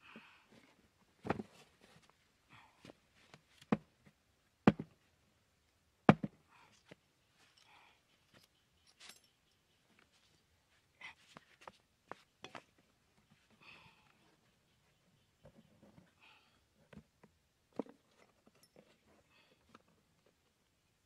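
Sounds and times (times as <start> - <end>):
sharp knocks on cardboard box: 4.7 - 4.9, 6.1 - 6.4.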